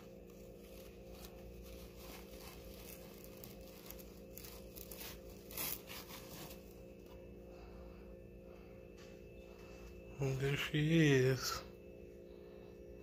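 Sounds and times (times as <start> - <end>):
cloth bag and paper rustling: 0.0 - 7.1.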